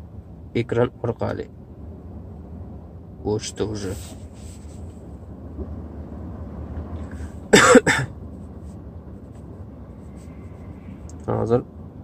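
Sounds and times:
steady low hum: 0.0s - 12.0s
person coughing: 7.5s - 8.1s.

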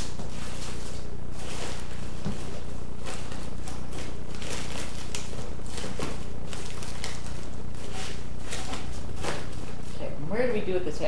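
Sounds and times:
plastic and foil crinkling: 0.0s - 10.0s
steady low hum: 0.0s - 11.0s.

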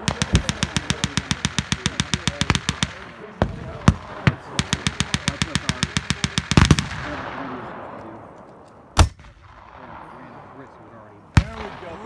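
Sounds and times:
machine gun firing blanks: 0.0s - 7.1s.

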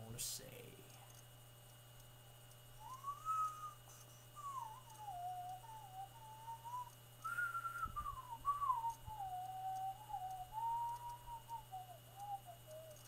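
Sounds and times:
person whistling a tune: 2.8s - 3.8s, 4.4s - 13.0s.

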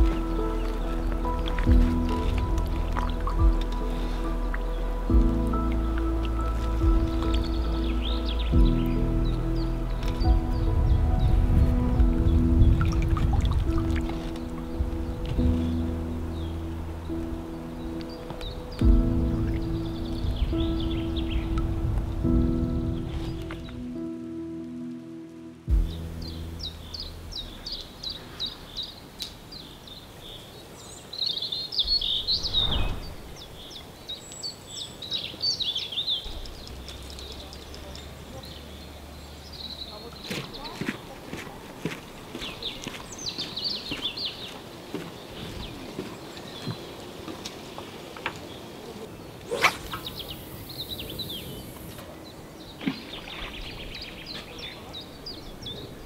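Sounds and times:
songbirds chirping: 0.0s - 56.0s
rush of noise: 31.8s - 33.9s
fishing rod whoosh: 32.0s - 33.7s, 49.5s - 50.3s.

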